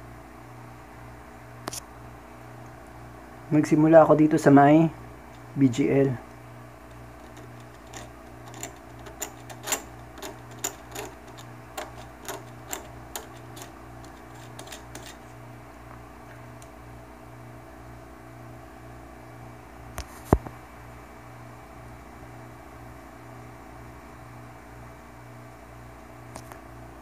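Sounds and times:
knife scraping circuit board: 6.9 - 15.3.

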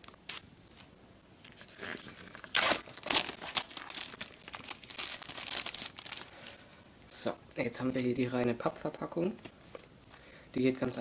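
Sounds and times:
plastic film tearing and crinkling: 1.5 - 6.6.

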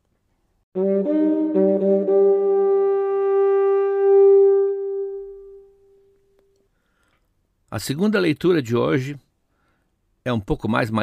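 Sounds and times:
wind instrument notes: 0.8 - 6.2.

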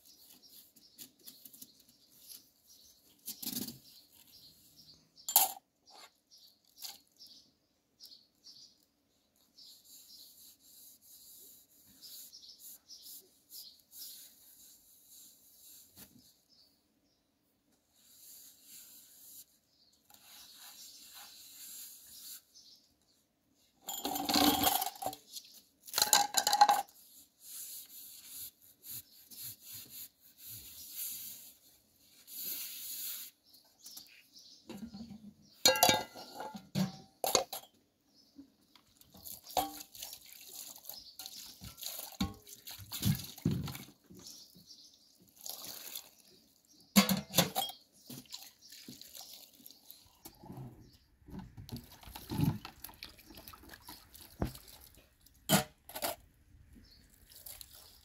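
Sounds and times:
pots and plates clattering: 23.9 - 25.2, 34.7 - 37.7, 47.0 - 47.8
water splashing and pouring: 45.3 - 46.2, 51.7 - 55.1, 57.1 - 58.0.

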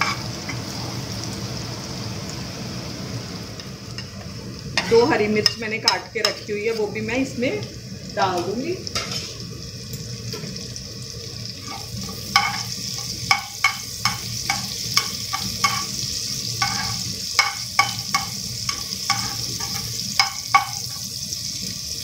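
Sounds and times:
spatula scraping and tapping pan: 0.0 - 0.6, 4.0 - 6.6, 11.6 - 16.0, 16.6 - 21.1
food sizzling in hot oil: 0.0 - 22.0.

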